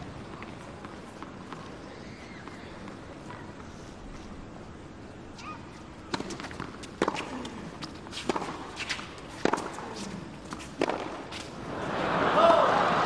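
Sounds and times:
quiet crowd: 0:00.0 - 0:13.0
tennis ball struck by racquets: 0:08.2 - 0:11.2.

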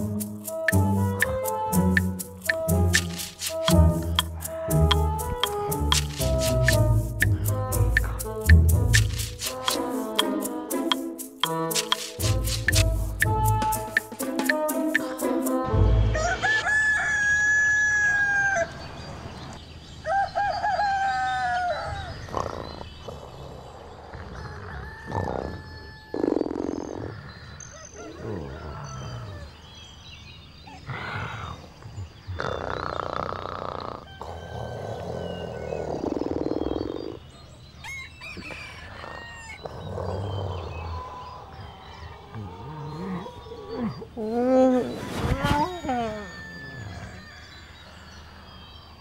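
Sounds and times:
rooster crowing: 0:16.1 - 0:18.8, 0:37.8 - 0:39.7, 0:46.2 - 0:47.7.

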